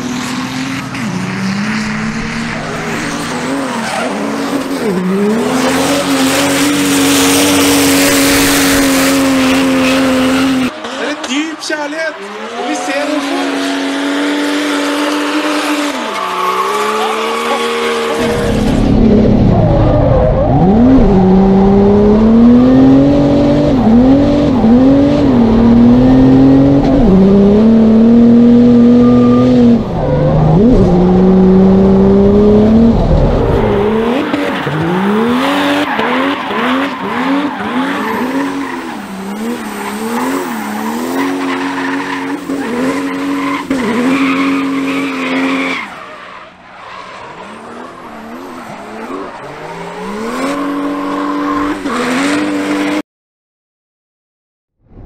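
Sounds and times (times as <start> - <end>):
tyre squeal: 15.2 - 18.3.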